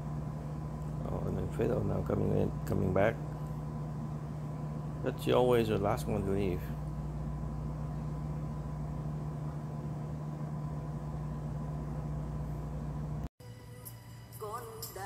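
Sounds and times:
low machine hum: 0.0 - 15.0
thin steady whine: 0.0 - 15.0.

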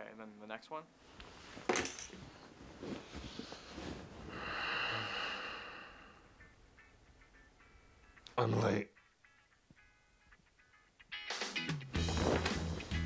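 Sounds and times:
bedding rustling: 1.0 - 4.8, 12.0 - 13.0
long breathy exhale: 4.3 - 6.3.

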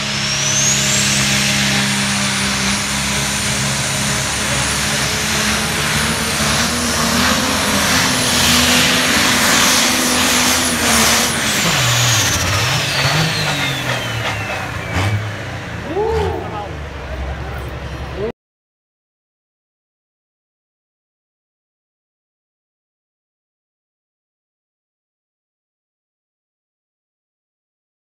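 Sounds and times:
tractor engine under load: 0.0 - 18.3.

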